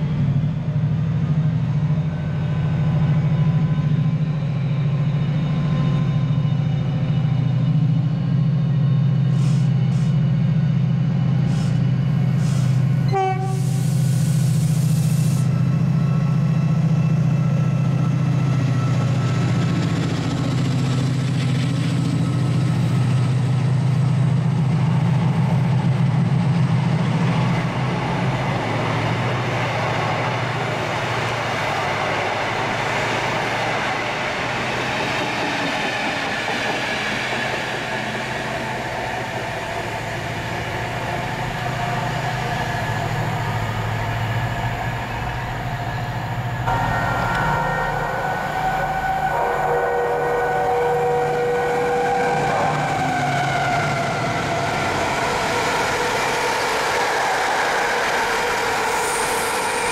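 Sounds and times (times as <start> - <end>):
train engine drone: 0.0 - 59.9
train wheels rushing: 11.3 - 59.9
steady tones: 46.0 - 51.0.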